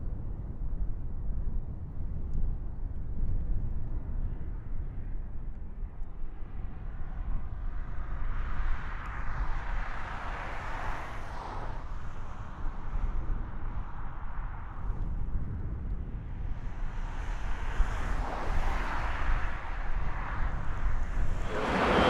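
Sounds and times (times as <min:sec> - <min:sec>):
wind on microphone: 0:00.0 - 0:22.0
vehicle passing: 0:21.2 - 0:22.0.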